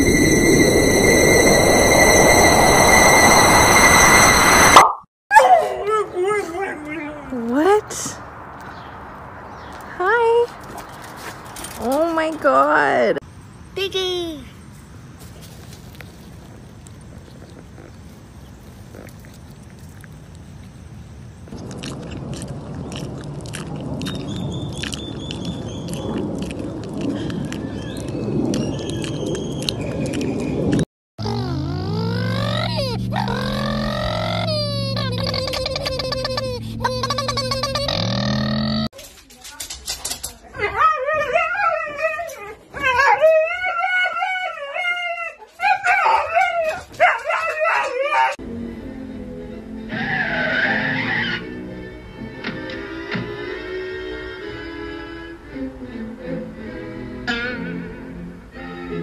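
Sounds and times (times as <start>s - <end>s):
animal chewing and smacking: 21.5s - 30.8s
husky howling: 40.7s - 48.4s.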